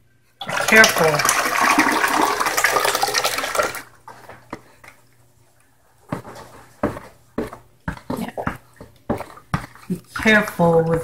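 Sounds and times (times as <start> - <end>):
thick liquid pouring into pot: 0.4 - 3.9
spatula knocking and scraping: 6.0 - 11.0.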